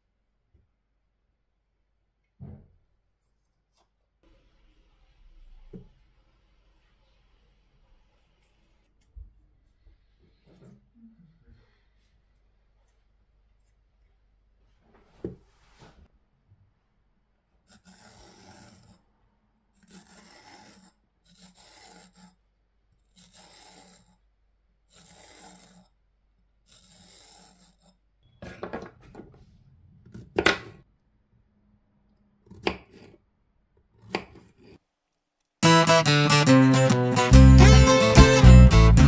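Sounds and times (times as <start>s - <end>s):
fork scraping zucchini skin: 19.8s - 22.4s, 23.1s - 24.2s.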